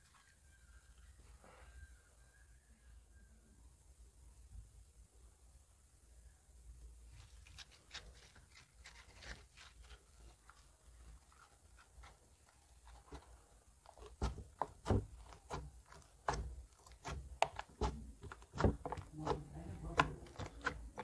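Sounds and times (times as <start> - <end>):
slime squelching and clicking: 11.3 - 21.0
slime popping: 12.8 - 21.0.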